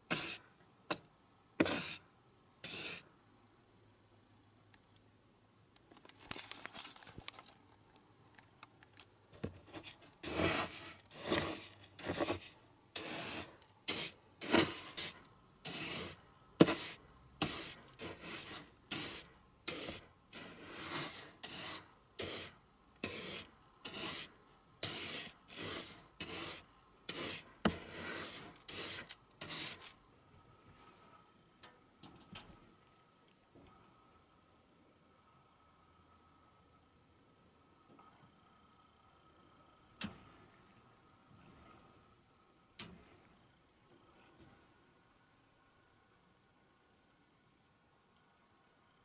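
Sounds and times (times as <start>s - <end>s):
rasping rubbing strokes: 9.8s - 29.9s.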